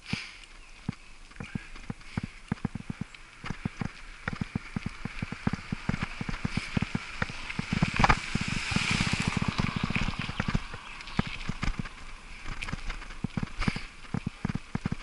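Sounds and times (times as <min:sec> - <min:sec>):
bicycle tyre hiss: 0:00.0 - 0:00.4
bicycle rattling over gravel: 0:00.9 - 0:15.0.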